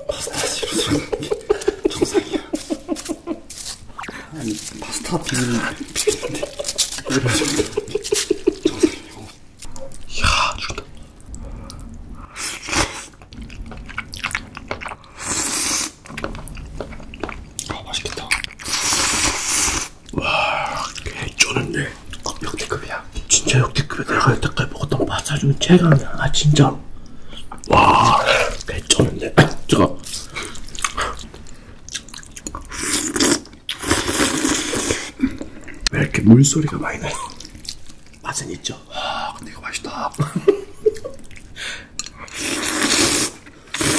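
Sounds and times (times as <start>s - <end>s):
noodles squelching with chopsticks: 0.0s - 10.0s
slurping and chewing: 0.0s - 10.1s, 10.7s - 22.8s, 29.7s - 35.9s, 40.9s - 43.9s.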